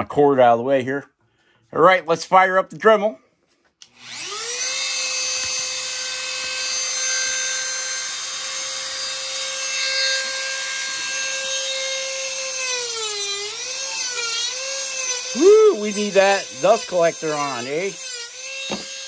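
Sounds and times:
rotary tool whining: 3.9s - 19.0s.

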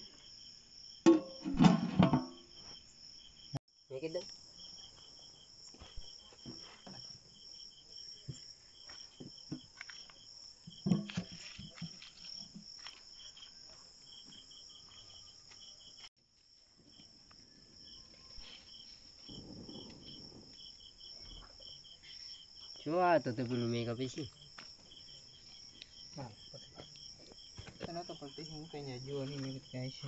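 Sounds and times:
crickets chirping: 0.0s - 30.0s
handling knocks and rustles: 9.2s - 13.1s.

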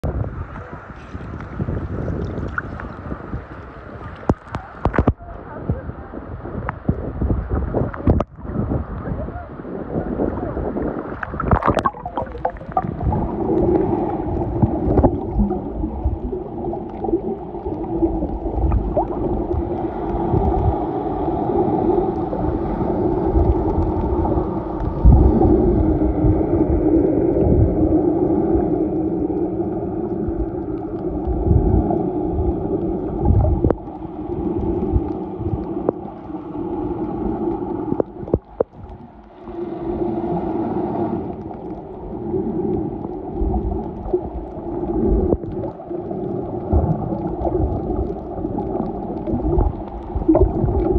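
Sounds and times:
water bumping against camera: 4.2s - 5.2s, 11.1s - 15.7s
water gurgling: 6.8s - 50.9s
splash into water: 11.2s - 13.2s.

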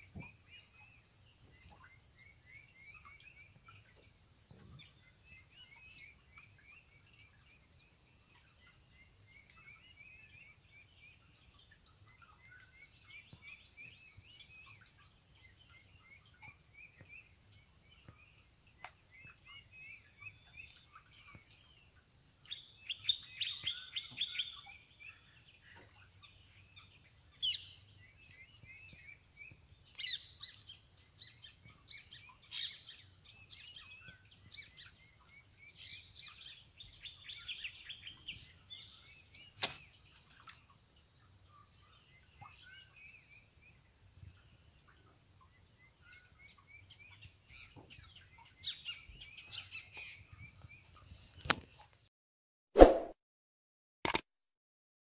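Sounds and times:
insects chorus: 0.0s - 52.0s
sharp click: 39.6s - 39.8s, 54.0s - 54.2s.

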